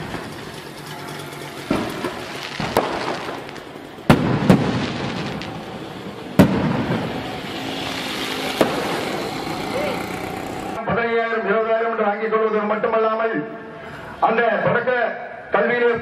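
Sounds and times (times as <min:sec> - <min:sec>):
fireworks bursting: 0:00.0 - 0:10.8.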